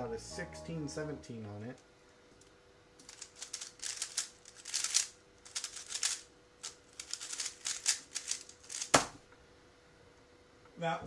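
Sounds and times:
puzzle cube clicking: 3.0 - 9.1.

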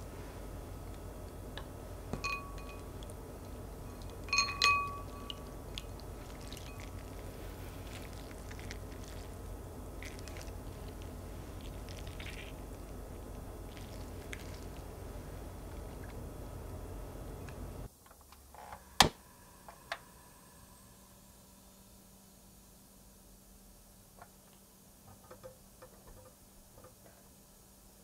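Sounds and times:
ringing clinks: 2.2 - 2.9, 4.3 - 5.4
water drips and squishes: 5.7 - 9.4.

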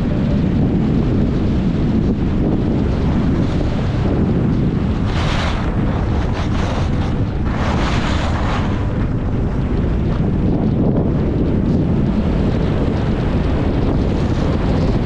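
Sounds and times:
wind rushing over microphone: 0.0 - 15.0
skis scraping snow: 4.9 - 8.9.

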